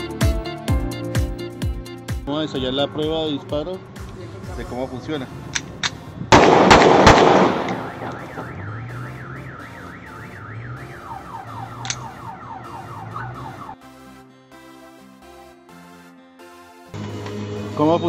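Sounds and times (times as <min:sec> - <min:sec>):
pistol shots with echo: 0:05.8 - 0:08.6
electronic alarm siren: 0:07.8 - 0:14.2.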